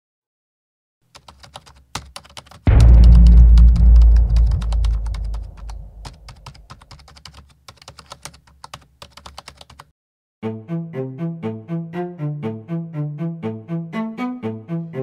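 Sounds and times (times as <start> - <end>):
deep low rumble: 2.7 - 6.6
low bowed string music: 10.4 - 15.0.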